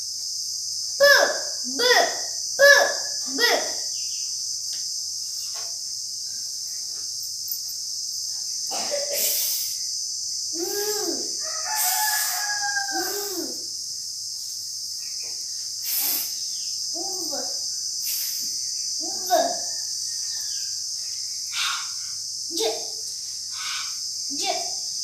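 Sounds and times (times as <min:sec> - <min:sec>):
crickets chirping: 0:00.0 - 0:25.0
rooster crowing: 0:11.3 - 0:13.6.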